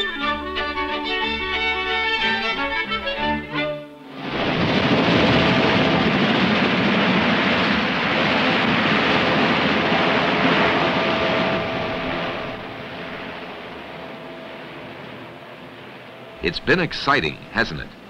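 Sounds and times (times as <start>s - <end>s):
helicopter engines and rotor: 5.0s - 18.0s.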